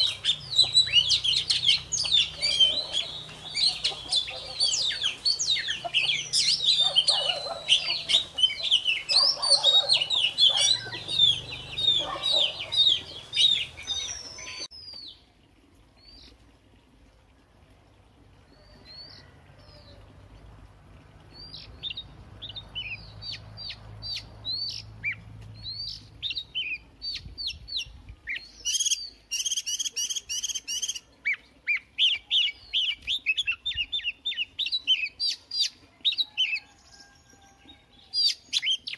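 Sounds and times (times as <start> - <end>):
bird singing: 0.0 - 15.2.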